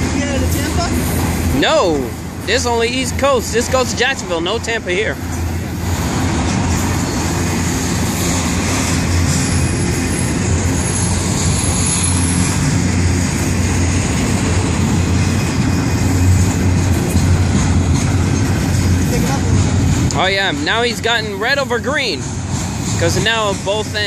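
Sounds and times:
freight train wheels rumbling: 0.0s - 24.0s
high wheel squeal: 6.8s - 13.8s.

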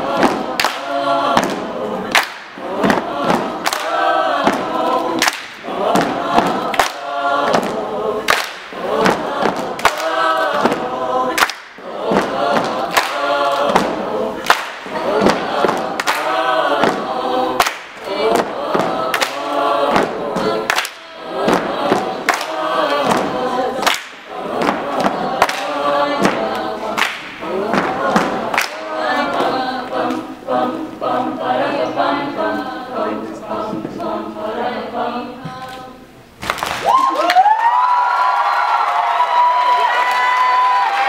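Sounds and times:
sharp evenly spaced beats: 0.0s - 31.6s
choir of young voices singing: 0.0s - 36.2s.

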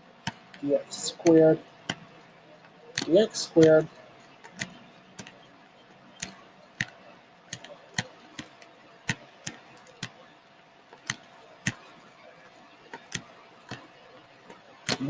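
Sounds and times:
stylus tapping on tablet: 0.2s - 0.6s, 3.0s - 5.5s, 6.1s - 10.2s, 10.9s - 12.0s, 12.9s - 15.0s.

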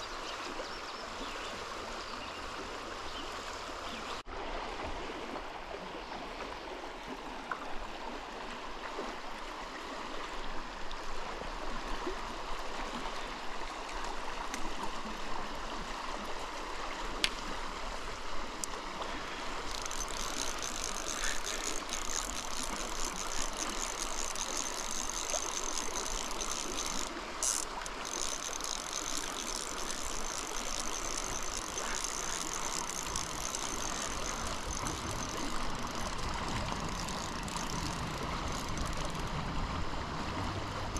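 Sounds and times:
river water rushing: 15.3s - 40.9s.

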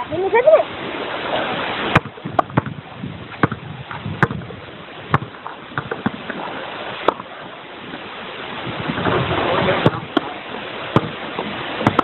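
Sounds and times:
ball struck with rackets: 1.9s - 2.8s, 3.4s - 4.5s, 5.1s - 6.4s, 7.0s - 7.3s, 9.8s - 10.3s, 10.9s - 12.0s.

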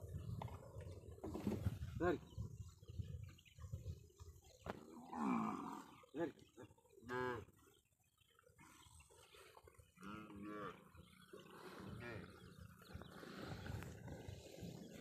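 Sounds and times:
cattle mooing: 10.0s - 10.8s.

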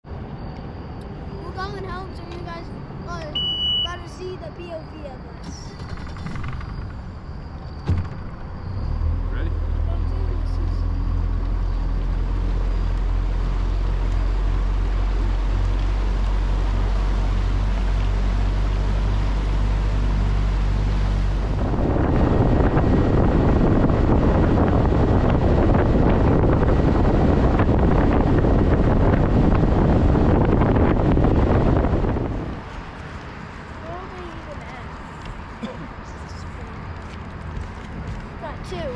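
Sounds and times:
rush of wind and water: 10.9s - 36.0s
wind buffeting microphone: 11.0s - 38.9s.

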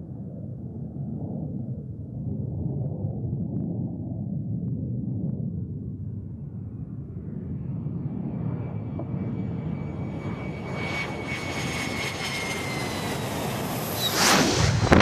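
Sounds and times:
jet engine passing: 7.4s - 15.0s.

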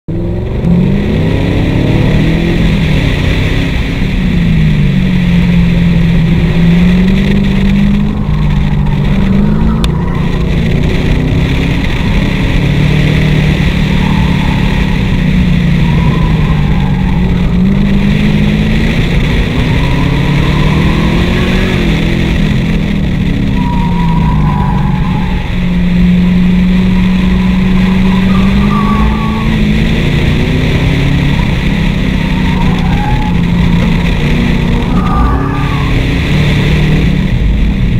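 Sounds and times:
car engine revving: 0.1s - 37.9s
wind and road noise: 0.1s - 37.9s
tyre squeals: 23.5s - 25.8s, 26.8s - 29.8s, 32.1s - 34.0s, 34.6s - 36.2s.

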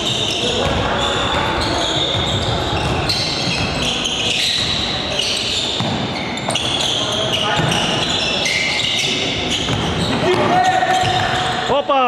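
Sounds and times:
sneakers squeaking: 0.0s - 11.8s
voices in a hall: 0.0s - 12.0s
ball bouncing: 2.0s - 8.2s, 9.0s - 11.4s.

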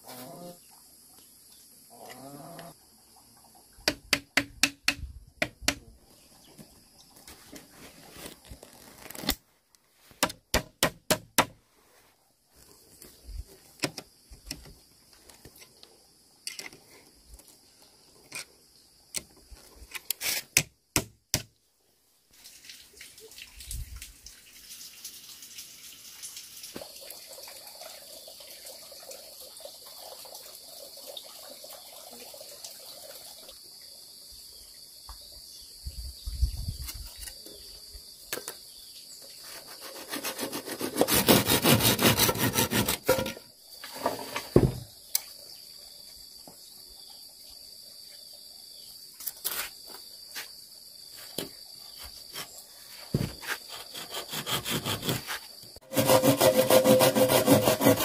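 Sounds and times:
hand tool knocking: 3.9s - 5.8s.

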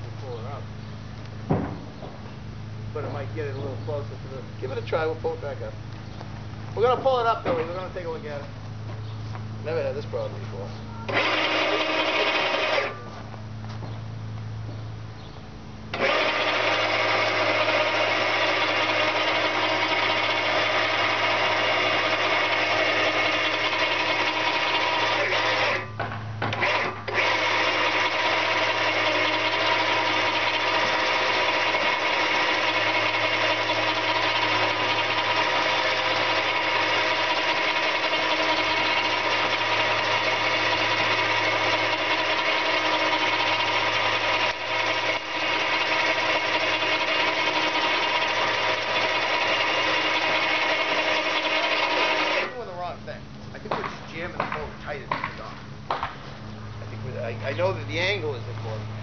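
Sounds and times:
electric winch motor whining: 10.1s - 13.3s, 15.9s - 52.9s.

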